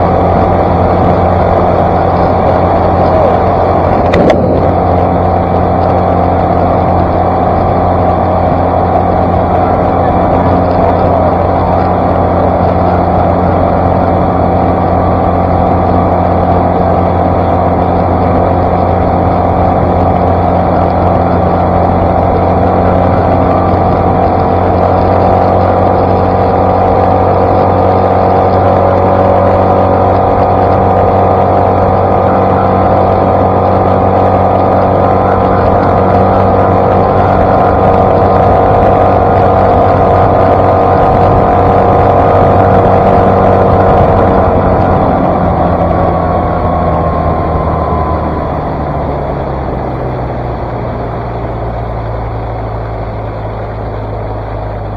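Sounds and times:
outboard motor running: 0.0 - 54.9.

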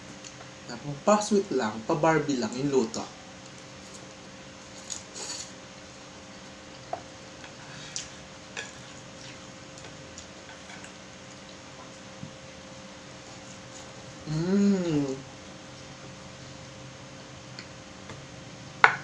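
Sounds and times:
faint steady hum: 0.0 - 19.0
person chewing food: 6.6 - 12.0.

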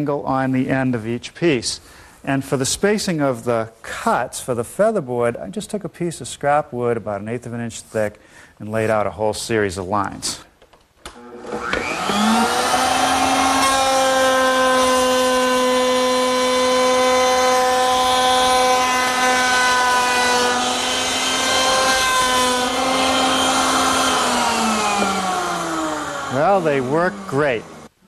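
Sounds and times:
woodworking power tool whining: 11.1 - 27.9.

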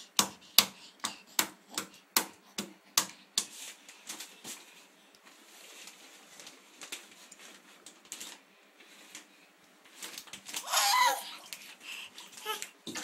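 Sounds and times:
baby squealing laugh: 10.6 - 11.4.

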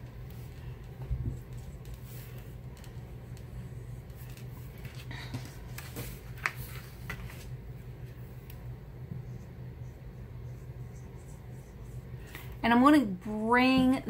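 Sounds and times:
steady low hum: 0.0 - 14.0
pencil strokes on paper: 9.2 - 12.6.

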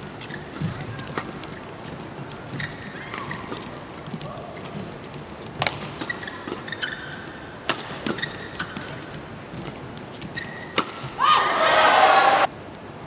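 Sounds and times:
court shoes squeaking: 0.0 - 11.6
racket striking shuttlecock: 5.4 - 11.2.

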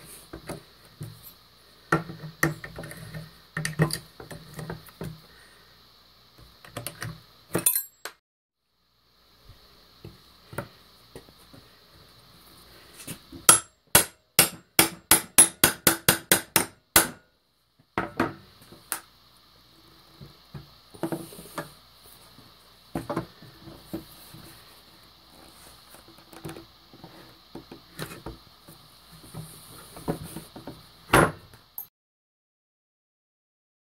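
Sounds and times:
hammer striking a steel pry bar: 13.5 - 17.2.

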